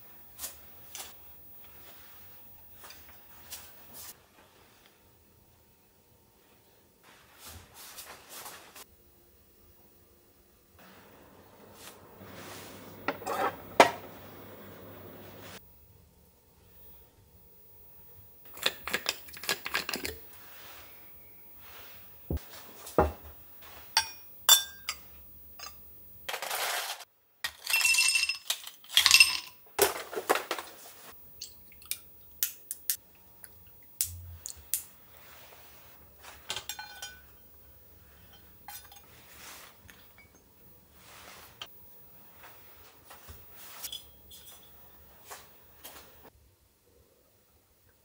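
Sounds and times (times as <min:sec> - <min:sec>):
dishes tapping and clicking: 0:11.1 - 0:15.5
ice cubes clinking into a glass: 0:27.4 - 0:29.6.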